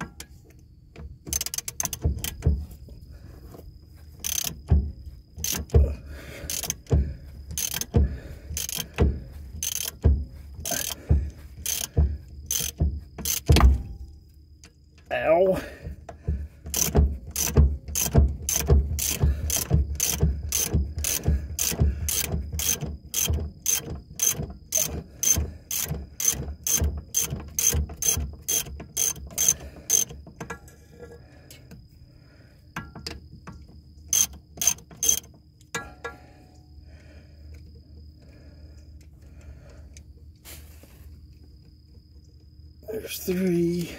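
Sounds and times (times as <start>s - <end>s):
ratchet wrench clicking: 1.2s - 2.6s, 4.2s - 4.8s, 5.4s - 5.9s, 6.5s - 10.0s, 10.6s - 13.7s, 16.7s - 30.6s, 34.1s - 35.8s.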